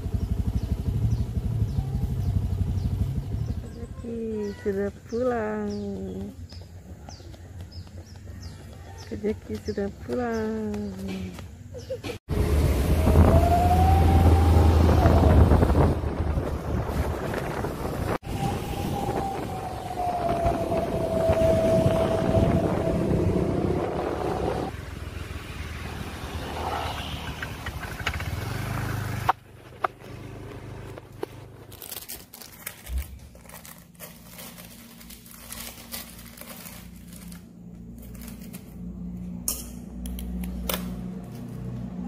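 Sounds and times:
small motorbike engine running: 0.0s - 8.6s, 25.6s - 38.8s
wind noise on microphone: 12.4s - 24.7s
rustling of handled objects: 30.8s - 38.8s.

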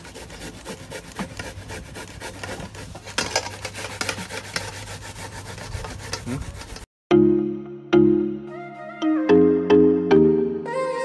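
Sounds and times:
apple rasping on metal grater: 0.0s - 6.9s.

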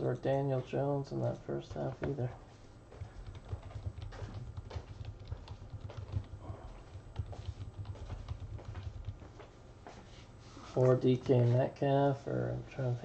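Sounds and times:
typing on computer keyboard: 3.0s - 9.4s.

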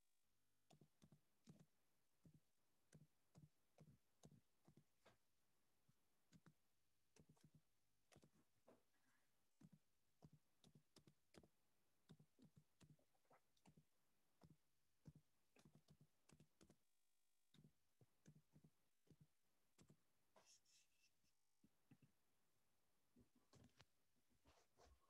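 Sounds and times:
faint keyboard typing: 0.6s - 5.3s, 6.2s - 21.1s.

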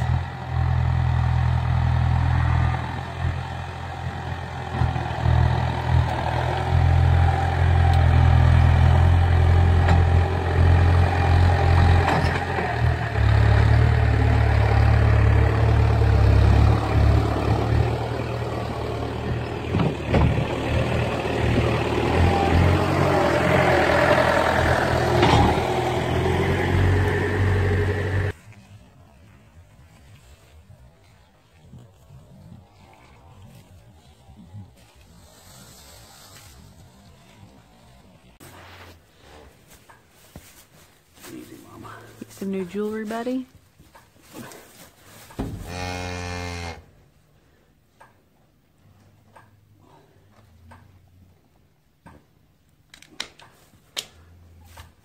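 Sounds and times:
tractor diesel engine running: 0.0s - 30.5s.

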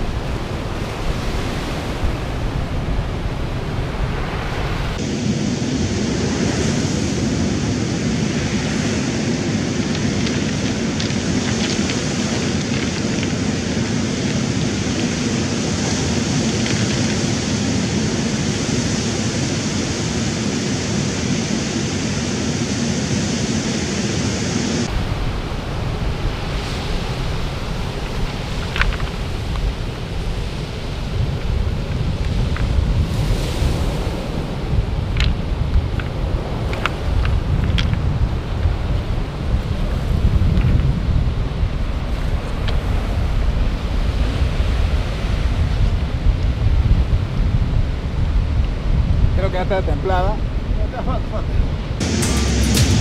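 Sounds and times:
wind buffeting microphone: 0.0s - 53.0s
surf breaking on pebbles: 6.1s - 19.4s, 24.8s - 38.9s.

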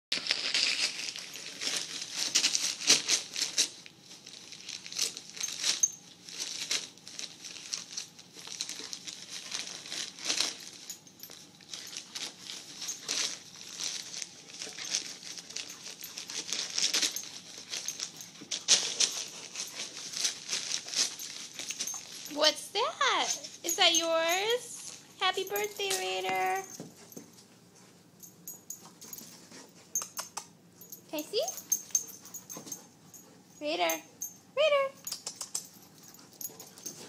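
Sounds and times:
dog tearing wrapping paper: 0.1s - 22.3s.

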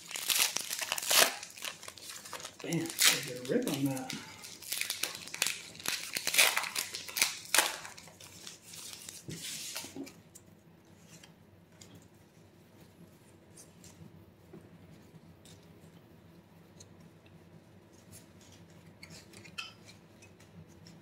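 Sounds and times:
card pack rustling and crinkling: 0.0s - 10.1s
low room hum: 0.0s - 21.0s.

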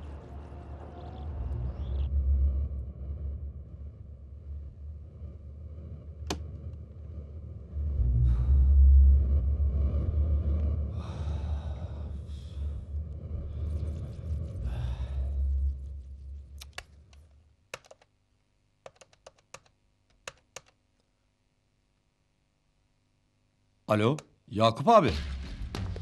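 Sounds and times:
low rumble: 0.0s - 17.1s.

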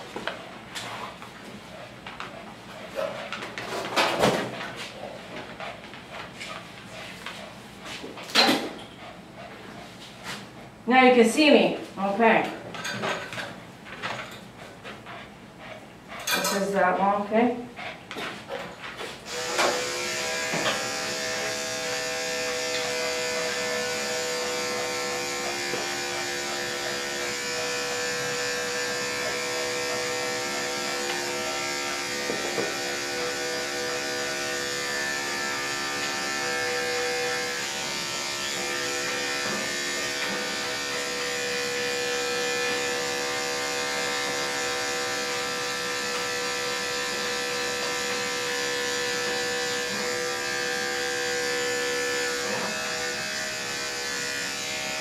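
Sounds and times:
clippers motor hum: 19.3s - 55.0s
electric clippers switching on: 19.3s - 55.0s.

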